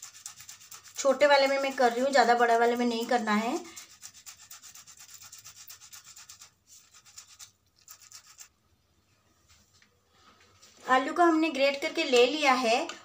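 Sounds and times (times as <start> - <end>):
potato grating scrapes: 0.0 - 8.5.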